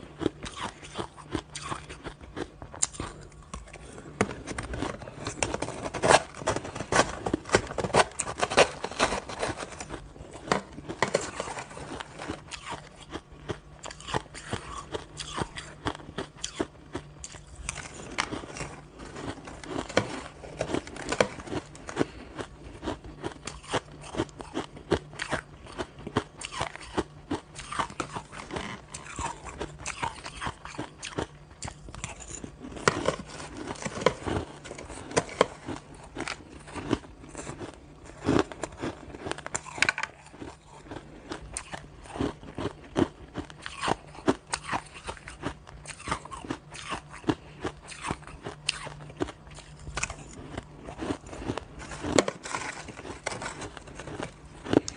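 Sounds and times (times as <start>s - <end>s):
chewing crushed ice: 0.0s - 54.9s.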